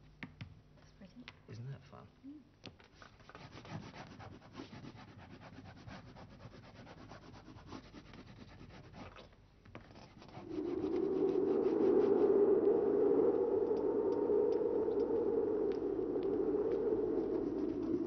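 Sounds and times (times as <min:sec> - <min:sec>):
steady low tone: 0:10.3 - 0:18.0.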